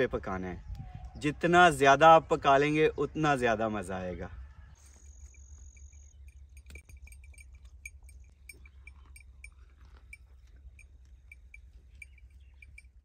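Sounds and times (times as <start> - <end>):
small neck bell clinking: 4.9 - 13.0
low steady rumble: 5.3 - 13.0.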